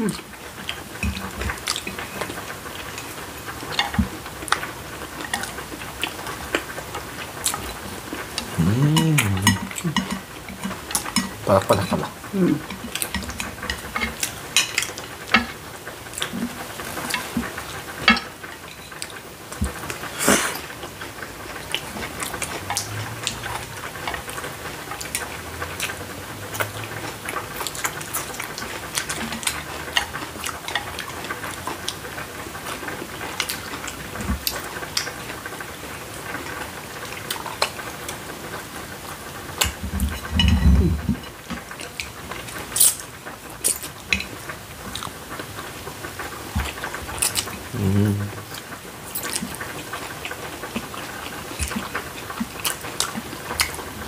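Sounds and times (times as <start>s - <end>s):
eating noodles: 0.0s - 35.6s, 39.6s - 45.2s, 46.4s - 54.0s
chewing crispy chicken: 0.0s - 54.0s
chopsticks clicking on plates: 8.4s - 15.6s.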